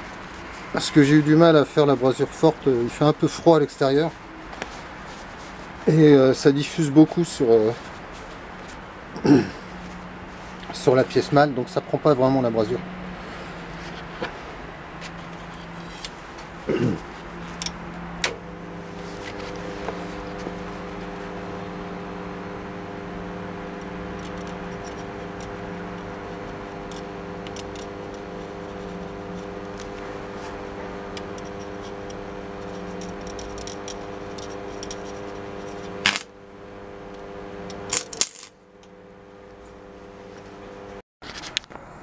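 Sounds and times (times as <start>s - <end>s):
arc welder humming: 0.0s - 41.0s
welding arc crackling: 15.2s - 38.9s
sharp crack: 36.0s - 36.3s.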